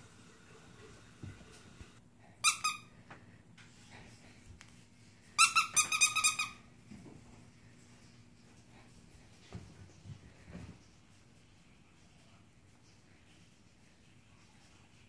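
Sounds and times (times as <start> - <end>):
squeaky dog toy squeaking: 2.4 - 2.9, 5.4 - 6.6.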